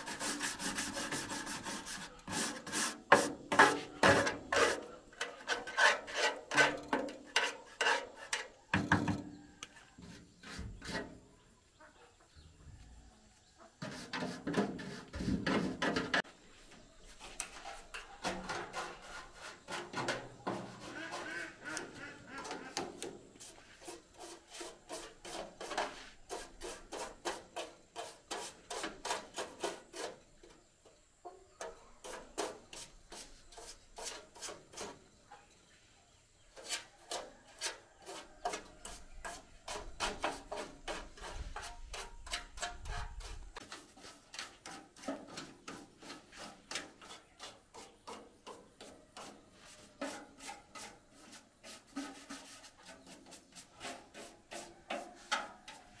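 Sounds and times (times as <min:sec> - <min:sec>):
hand scrubbing metal casing: 0:00.0 - 0:08.6, 0:36.6 - 0:56.0.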